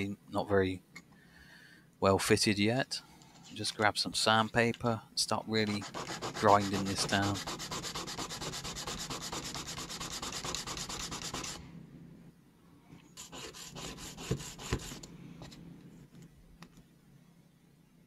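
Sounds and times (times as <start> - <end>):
plastic card sanding on sandpaper: 5.7 - 11.6, 13.2 - 15.1.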